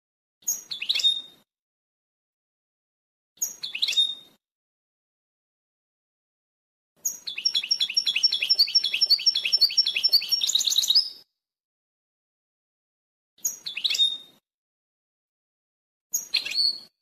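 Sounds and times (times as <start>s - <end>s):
goldfinch song trill: 7.1s - 11.2s.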